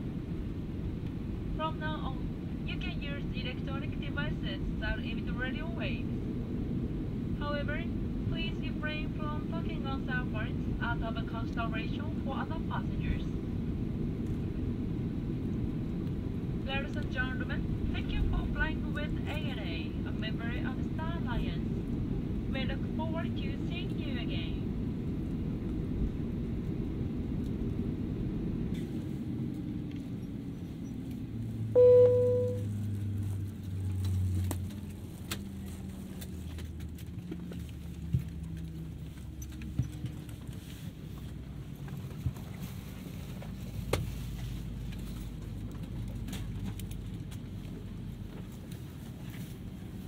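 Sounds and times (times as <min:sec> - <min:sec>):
airplane cabin rumble: 0:00.0 - 0:50.0
loud chime: 0:31.8 - 0:32.6
low hums falling in pitch: 0:31.8 - 0:32.7.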